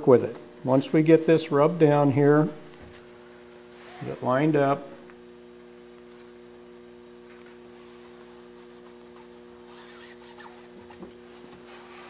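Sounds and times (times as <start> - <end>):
steady low hum: 0.0 - 12.0
fingers scratching fabric tape: 8.3 - 11.0.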